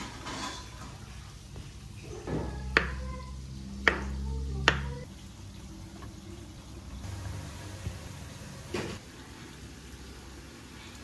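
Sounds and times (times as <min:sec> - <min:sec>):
knife chopping on wooden board: 0:03.8 - 0:05.0.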